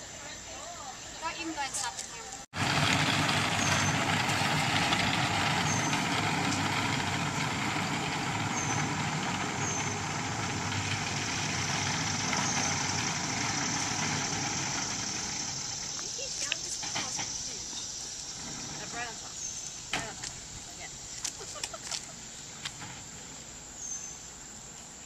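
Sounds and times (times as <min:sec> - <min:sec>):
steady machine noise: 0:02.6 - 0:19.2.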